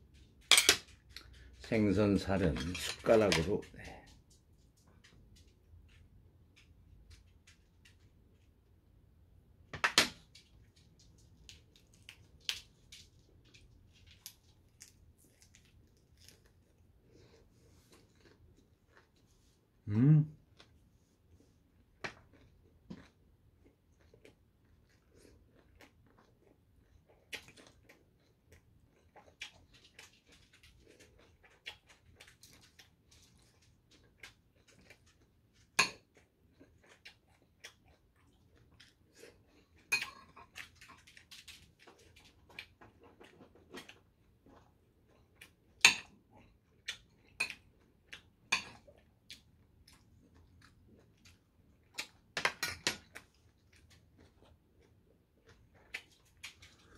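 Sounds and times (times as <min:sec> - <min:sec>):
quiet chewing: 0:00.0 - 0:08.8, 0:10.2 - 0:56.9
metal spoon clinking on plates: 0:00.5 - 0:00.8.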